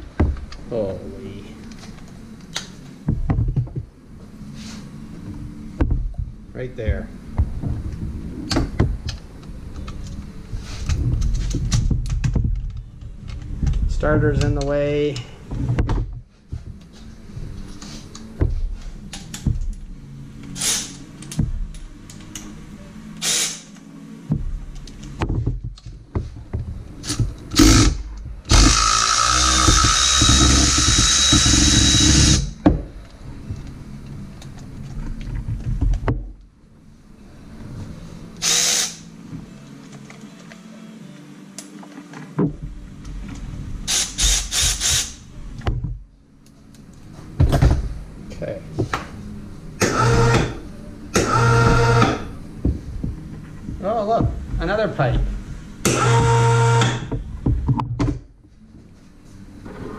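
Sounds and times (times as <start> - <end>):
power ratchet motor whine: 27.5 - 32.6, 49.8 - 50.6, 51.2 - 52.3, 55.9 - 57.1.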